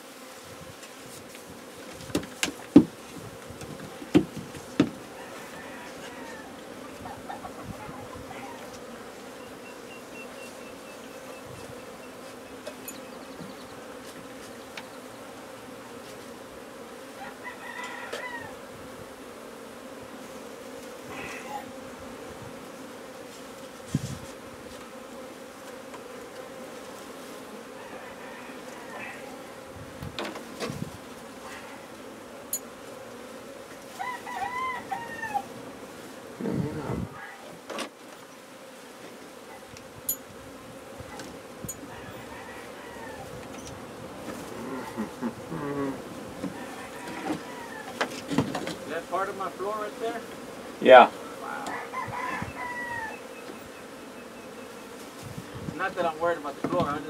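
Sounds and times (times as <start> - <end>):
bees buzzing: 0.0 - 57.0
knocks on wooden frame: 2.0 - 3.0, 3.6 - 5.0
chicken calling: 5.1 - 11.4, 21.1 - 21.8, 34.0 - 35.5, 41.8 - 43.4, 44.5 - 48.0, 51.5 - 54.8.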